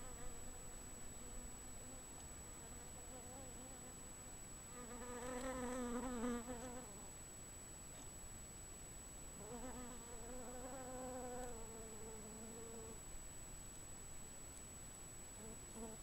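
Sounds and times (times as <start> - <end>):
flying insect buzzing: 0.0 - 4.1, 4.7 - 7.1, 9.4 - 13.0, 15.4 - 16.0.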